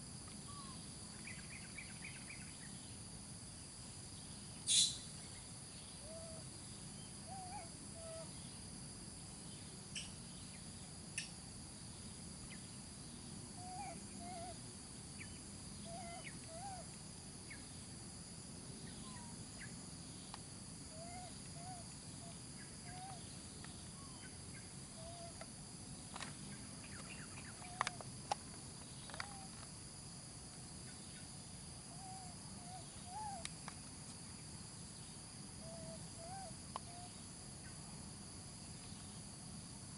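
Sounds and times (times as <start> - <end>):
high insect drone: 0.0 - 39.9
low bird calls: 4.6 - 5.1, 7.2 - 8.4, 13.6 - 14.6, 15.2 - 16.9, 20.9 - 25.4, 28.9 - 29.6, 32.0 - 33.5, 35.6 - 37.2.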